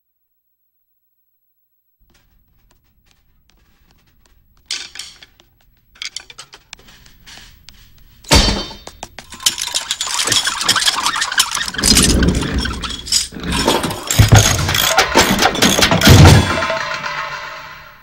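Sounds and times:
metallic clattering: 0:04.1 - 0:07.6, 0:08.2 - 0:17.9
loud metallic hit: 0:14.2 - 0:18.0.

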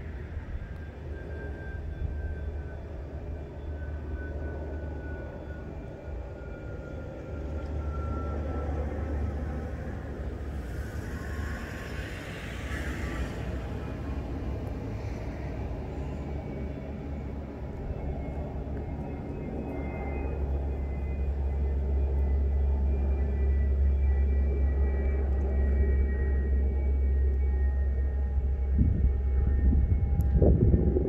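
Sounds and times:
low outdoor rumble: 0:00.0 - 0:31.0
hiss: 0:10.6 - 0:13.8.

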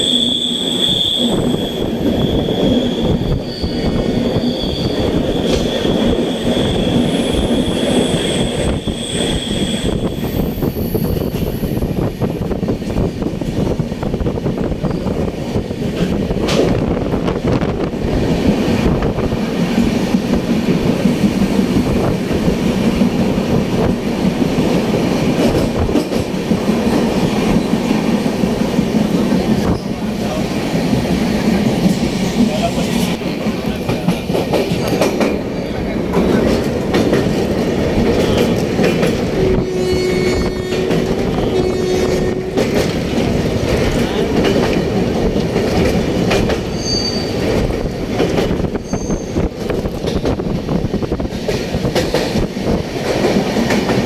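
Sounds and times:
train rumbling: 0:00.0 - 0:54.0.

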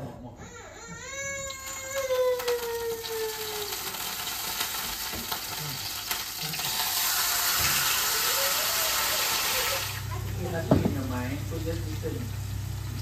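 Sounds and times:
steak sizzling in frying pan: 0:02.0 - 0:10.1.

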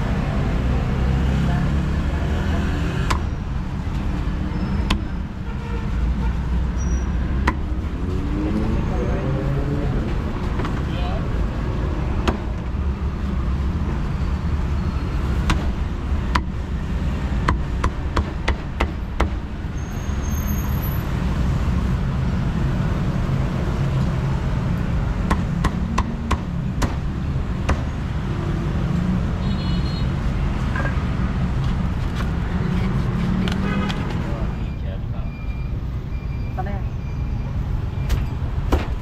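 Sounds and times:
low rumble of street traffic: 0:00.0 - 0:39.0.

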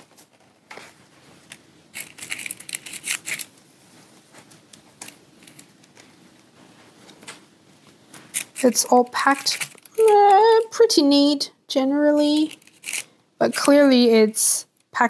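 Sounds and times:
packaging rustling and clicking: 0:00.0 - 0:03.6, 0:09.3 - 0:10.6, 0:12.4 - 0:13.7.

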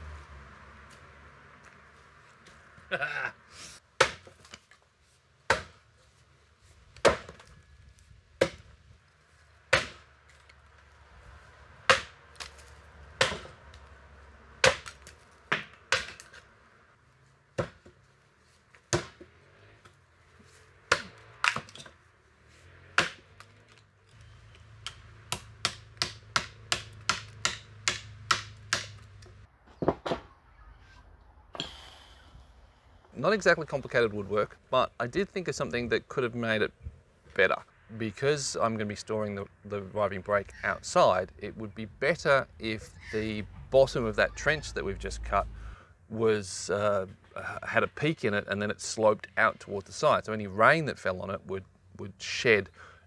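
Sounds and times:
axe chopping timber: 0:04.0 - 0:04.5, 0:05.5 - 0:05.8, 0:07.0 - 0:07.5, 0:08.4 - 0:08.7, 0:09.7 - 0:10.1, 0:11.8 - 0:13.6, 0:14.6 - 0:16.4, 0:17.6 - 0:17.9, 0:18.9 - 0:19.3, 0:20.8 - 0:21.9, 0:22.9 - 0:23.5, 0:24.8 - 0:29.0.

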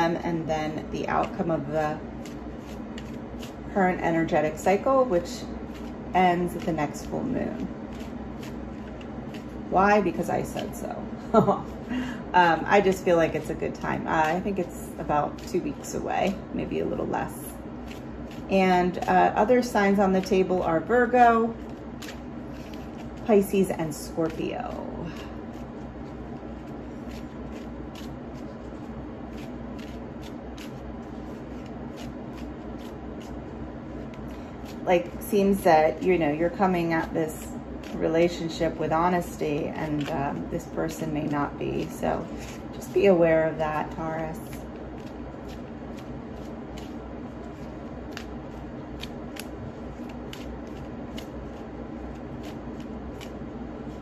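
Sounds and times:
low room hum: 0:00.0 - 0:54.0
cards being shuffled: 0:01.1 - 0:03.7, 0:05.6 - 0:09.6, 0:12.9 - 0:16.4, 0:17.8 - 0:20.6, 0:21.5 - 0:36.2, 0:37.0 - 0:42.9, 0:43.8 - 0:54.0.

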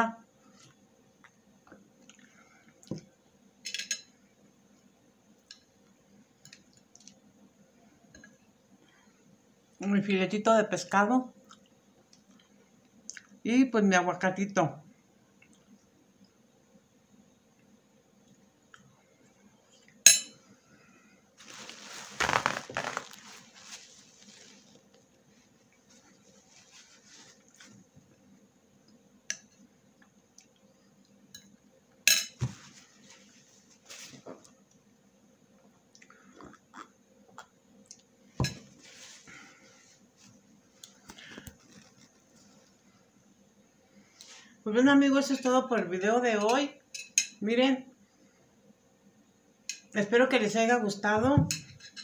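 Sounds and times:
scuffs: 0:21.4 - 0:24.8
rustling: 0:21.4 - 0:28.0, 0:32.4 - 0:34.5, 0:38.6 - 0:40.4, 0:41.0 - 0:42.8.

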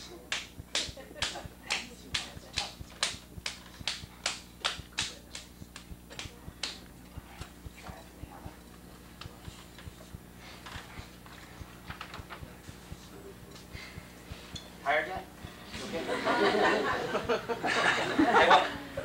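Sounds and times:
hands slapping wet clay: 0:00.3 - 0:07.9.

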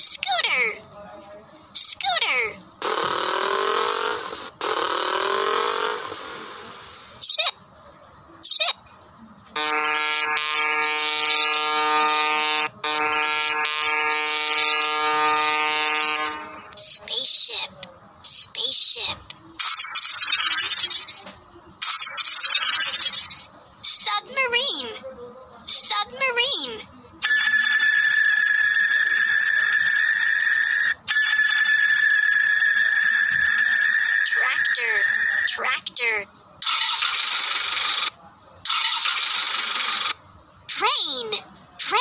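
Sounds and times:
ship's horn blasts: 0:09.6 - 0:16.7
high-pitched whine: 0:27.2 - 0:35.6.

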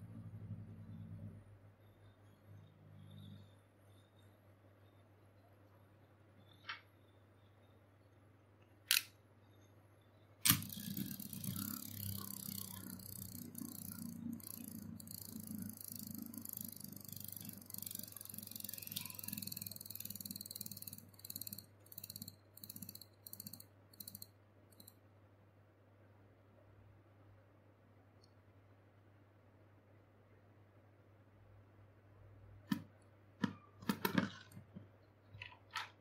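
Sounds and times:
spinning top landing clack: 0:10.4 - 0:24.2
spinning top whirring scrape: 0:10.5 - 0:24.2
spinning top wobbling rattle: 0:10.5 - 0:24.9.

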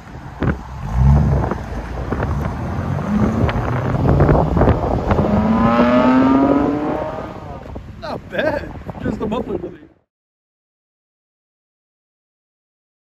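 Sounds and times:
car exhaust accelerating: 0:00.0 - 0:08.0
wind buffeting microphone: 0:00.0 - 0:09.9.

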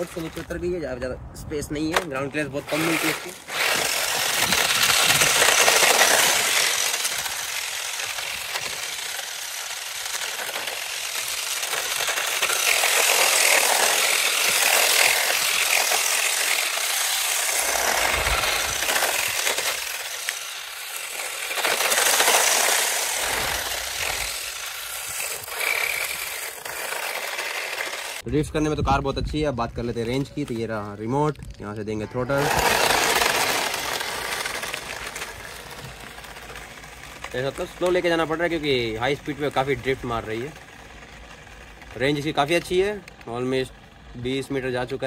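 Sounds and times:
rc car tyres rattling on cement: 0:00.0 - 0:01.0, 0:01.8 - 0:45.0.

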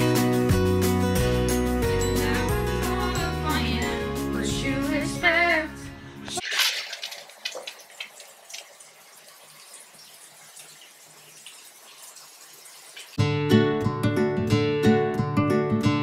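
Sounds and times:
shower spraying into bathtub: 0:06.4 - 0:13.2
water splashes: 0:06.4 - 0:13.2.

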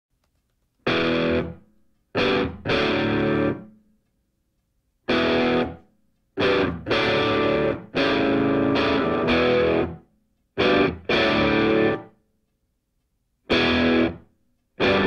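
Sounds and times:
distorted electric guitar chords: 0:00.9 - 0:01.6, 0:02.2 - 0:03.7, 0:05.1 - 0:05.8, 0:06.4 - 0:10.0, 0:10.6 - 0:12.1, 0:13.5 - 0:14.2, 0:14.8 - 0:15.0.

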